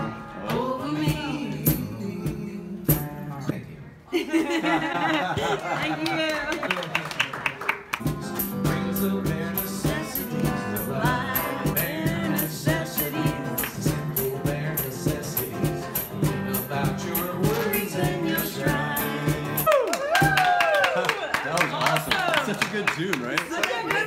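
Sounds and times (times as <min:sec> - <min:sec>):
man singing: 0:00.0 - 0:03.5, 0:08.0 - 0:19.7
guitar strumming: 0:08.0 - 0:19.7.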